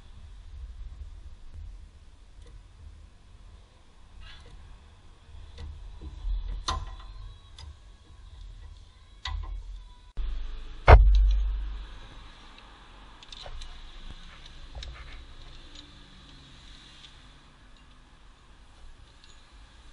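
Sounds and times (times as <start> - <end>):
scattered clicks and knocks: 5.5 - 9.8, 10.9 - 12.0, 12.6 - 16.4
low rumble: 10.1 - 15.4.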